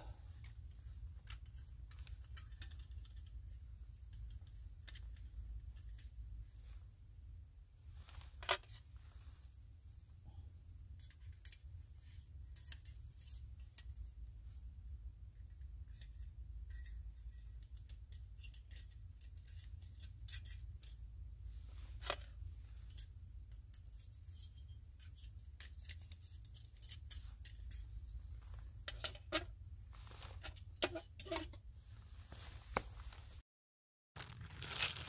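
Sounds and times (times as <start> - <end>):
small metal clicks and scrapes: 0.3 - 6.2, 8.0 - 8.8, 10.9 - 14.1, 15.3 - 21.1, 21.7 - 31.6.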